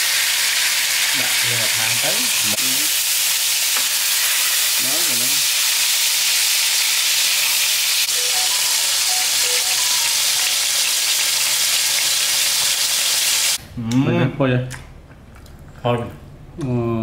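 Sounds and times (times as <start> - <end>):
food sizzling in a pan: 0.0 - 13.6.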